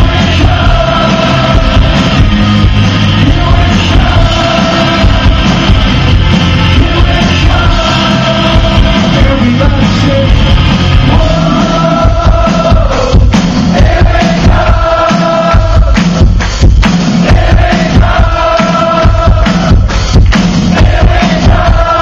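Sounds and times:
concert crowd: 0.0s - 22.0s
live rock band playing: 0.0s - 22.0s
person singing: 3.1s - 5.8s, 6.7s - 10.4s, 11.0s - 16.0s.

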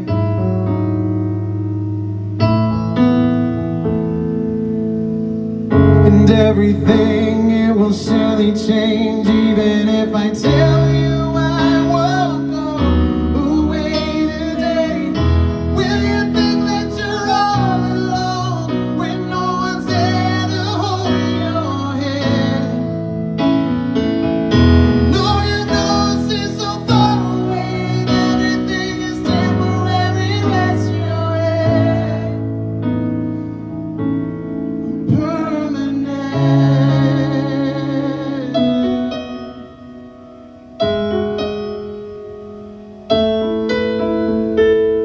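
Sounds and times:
keyboard chords: 0.0s - 45.0s
man singing: 5.9s - 23.0s, 25.0s - 32.6s, 35.0s - 39.7s.

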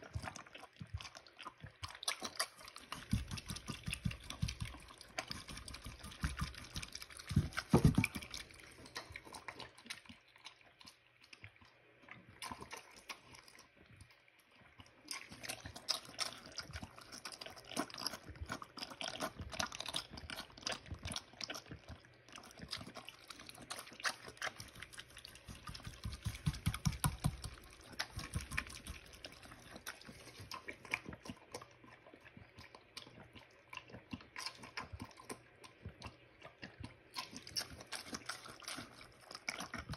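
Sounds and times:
pig slurping and chewing food: 0.0s - 39.9s
pig slurping water: 0.0s - 39.9s.

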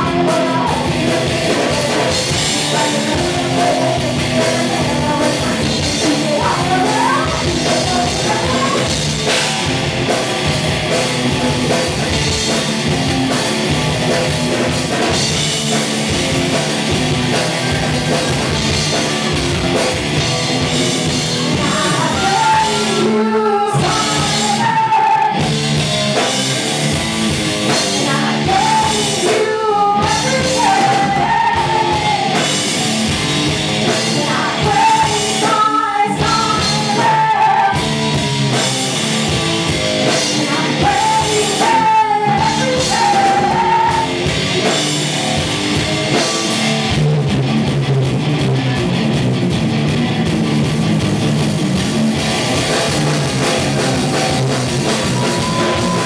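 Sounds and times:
woman singing: 0.0s - 9.0s, 21.5s - 25.5s, 27.7s - 32.6s, 33.9s - 38.2s, 40.0s - 44.3s
drum kit: 0.0s - 56.0s
electric guitar: 0.0s - 56.0s.

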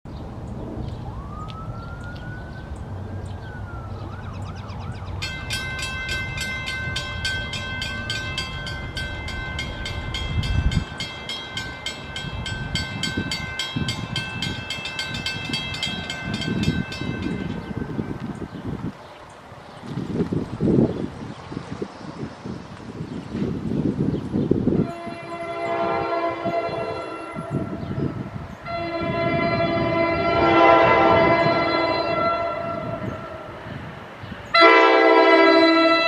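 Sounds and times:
siren wailing: 1.0s - 5.2s, 28.7s - 33.5s
mechanical crossing bells ringing: 5.2s - 17.8s.

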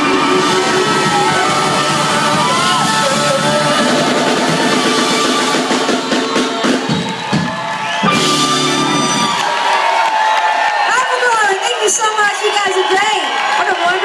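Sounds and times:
live blues rock band: 0.0s - 9.4s
crowd cheering: 0.0s - 14.0s.

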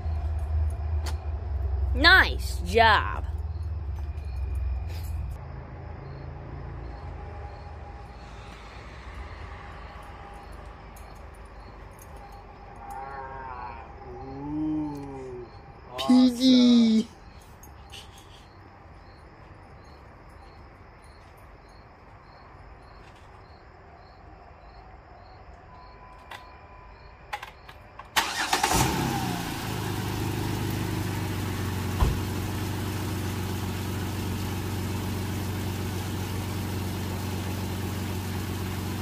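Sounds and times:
car engine starting and idling: 28.1s - 39.0s.

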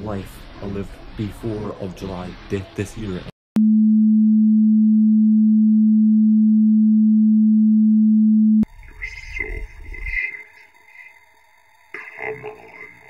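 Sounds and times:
low electronic sine tone: 3.6s - 13.0s
distorted glitchy noise: 8.7s - 13.0s.

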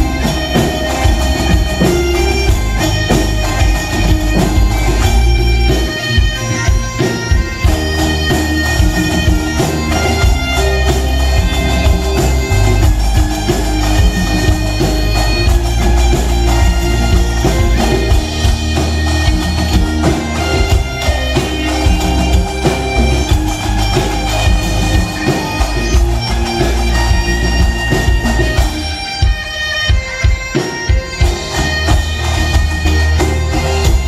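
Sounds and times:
bagpipes playing folk tune: 0.0s - 34.0s
drums: 0.0s - 34.0s
electric guitar: 0.0s - 34.0s
keyboard: 0.0s - 34.0s
heavy bass line: 7.6s - 28.8s.

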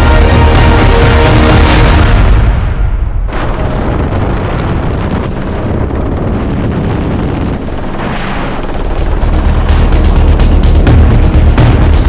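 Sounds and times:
helicopter rotor and engine: 3.3s - 12.0s.

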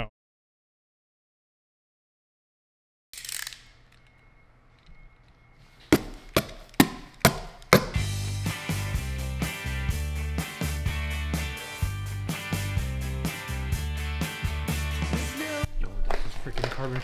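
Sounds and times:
sharp knocks: 5.9s - 8.0s
music: 7.7s - 15.9s.

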